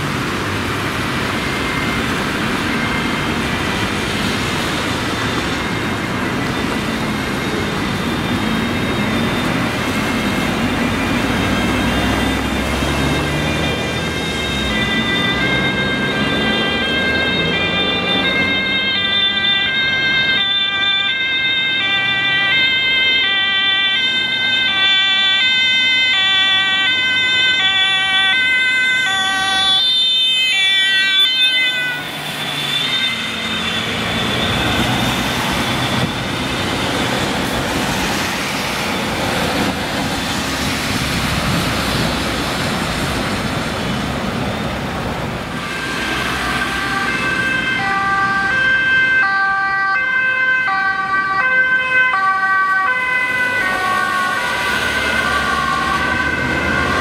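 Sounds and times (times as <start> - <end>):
ambulance two-tone siren: 0.0 - 43.7, 45.4 - 57.0
loud traffic noise: 0.0 - 57.0.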